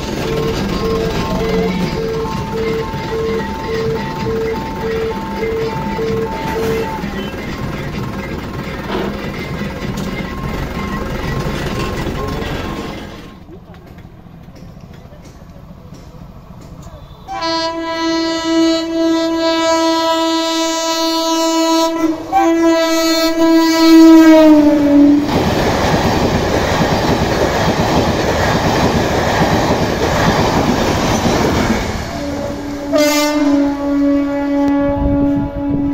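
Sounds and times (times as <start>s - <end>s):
train coaches rushing past: 0.0s - 35.9s
train horn blast: 0.2s - 7.4s, 16.9s - 25.3s, 31.7s - 35.9s.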